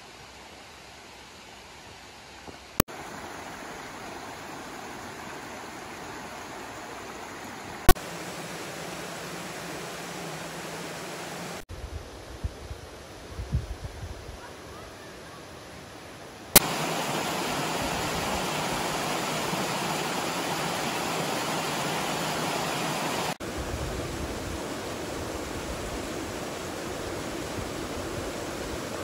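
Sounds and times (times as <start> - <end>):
small waterfall splashing: 1.8 - 11.7, 16.5 - 29.0
stream rushing over rocks: 2.0 - 11.6, 15.6 - 29.0.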